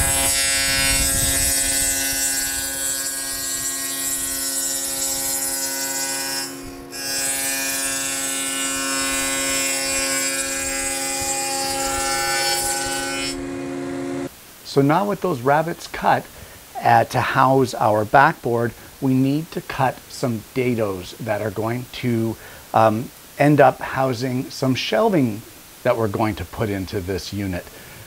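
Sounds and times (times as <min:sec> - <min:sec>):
saw cutting hiss: 0:00.0 - 0:14.3
table saw running: 0:00.0 - 0:14.3.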